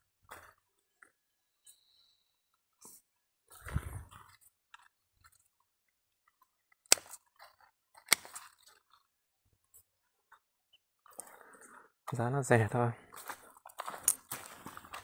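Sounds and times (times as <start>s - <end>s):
footsteps crunching on dry soil: 3.5s - 4.4s, 12.1s - 15.0s.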